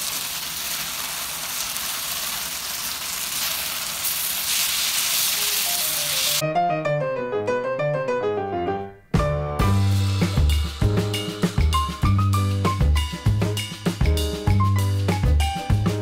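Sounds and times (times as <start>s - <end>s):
meat sizzling in a skillet: 0.0s - 6.4s
background music of quick notes: 5.7s - 16.0s.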